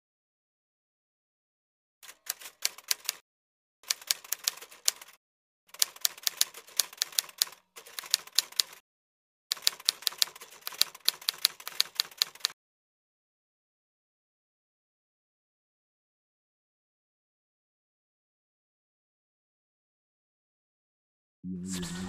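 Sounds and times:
typewriter keys clacking: 2.0s - 3.2s, 3.8s - 8.8s, 9.5s - 12.6s.

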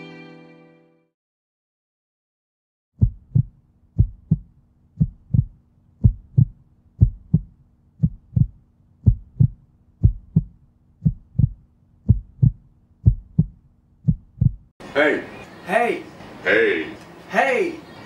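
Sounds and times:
heartbeat thumps: 3.0s - 14.7s
faint low hum: 3.0s - 16.1s.

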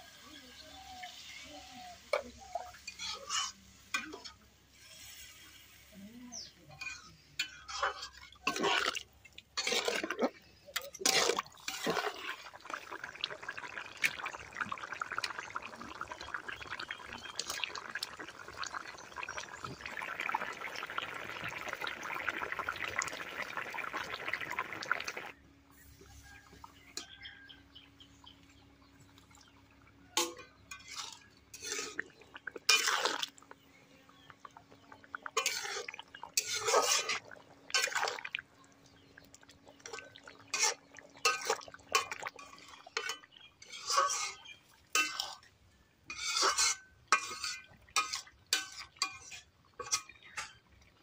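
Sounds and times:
curry boiling and bubbling: 0.0s - 51.0s
water splashing into a wok: 7.4s - 25.4s, 30.2s - 51.0s.

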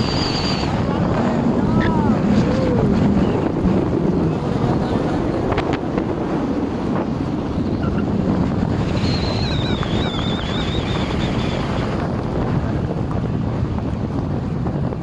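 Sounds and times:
car road and engine rumble: 0.0s - 15.0s
wind buffeting microphone: 0.0s - 15.0s
thin wavering high whistle: 8.9s - 11.5s.

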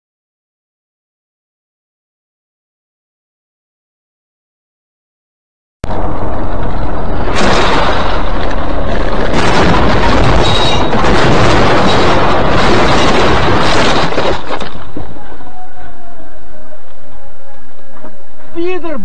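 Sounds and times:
distorted vehicle noise: 5.8s - 19.0s.

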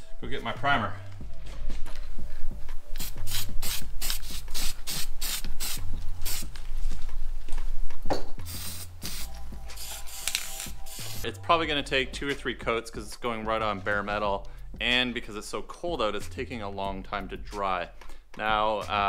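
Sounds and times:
aerosol can spraying: 2.9s - 6.5s, 8.4s - 11.3s.

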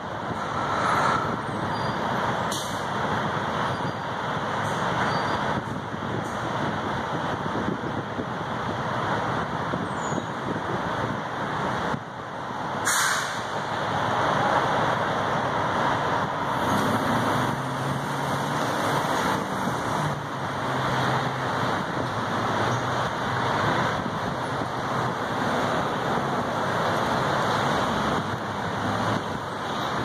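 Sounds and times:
road traffic noise: 0.0s - 30.0s
short sharp burst of noise: 12.8s - 13.6s.

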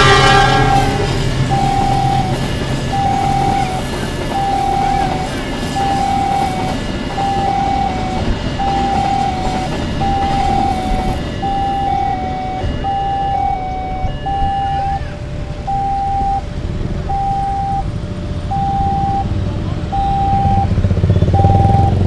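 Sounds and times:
level-crossing alarm chime: 0.0s - 19.3s, 19.9s - 20.8s, 21.4s - 22.0s
motorcycle and car engines idling: 14.4s - 22.0s.

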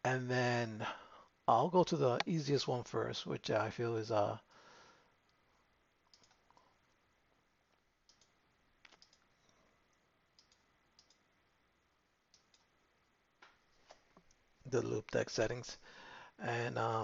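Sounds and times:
faint computer mouse clicks: 6.1s - 6.6s, 8.0s - 9.6s, 10.4s - 11.2s.

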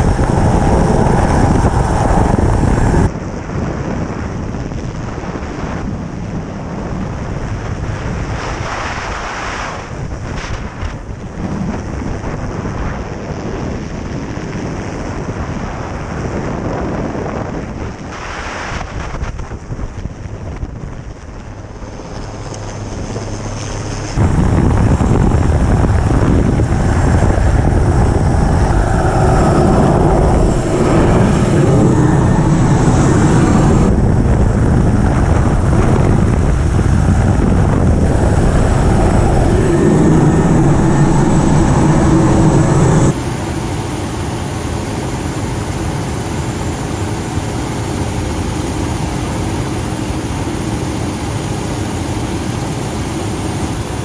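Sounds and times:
helicopter engine and rotor drone: 0.0s - 3.1s, 21.8s - 54.0s
wind rushing: 0.0s - 3.4s, 24.2s - 54.0s.

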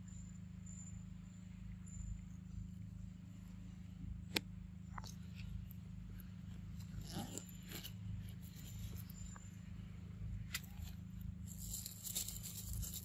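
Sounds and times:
monkey chewing corn crunches: 10.6s - 13.0s.

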